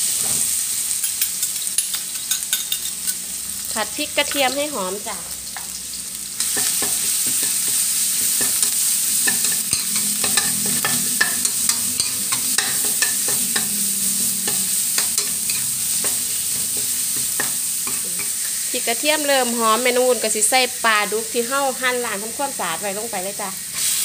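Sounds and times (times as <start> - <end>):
paste sizzling in hot oil: 0.0 - 24.0
metal spatula scraping wok: 1.0 - 3.3, 6.4 - 19.6.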